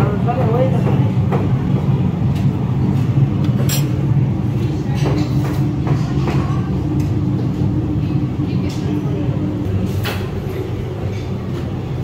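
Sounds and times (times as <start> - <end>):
metal utensils clinking: 3.7 - 4.0.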